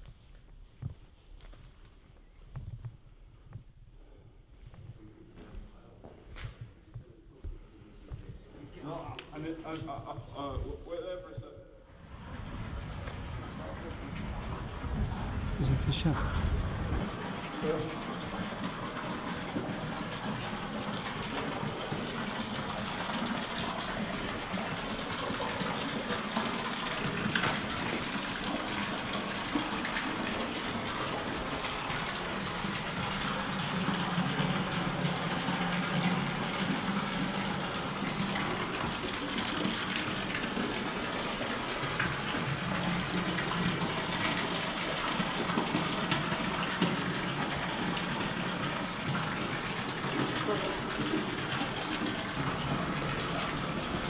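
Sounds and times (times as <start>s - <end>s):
water rushing: 12.0s - 54.0s.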